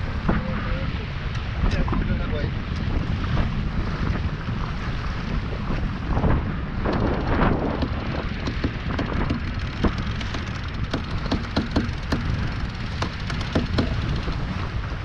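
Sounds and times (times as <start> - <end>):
water splashing along hull: 0.0 - 15.0
wind buffeting microphone: 0.0 - 15.0
sharp water slaps: 6.8 - 14.7.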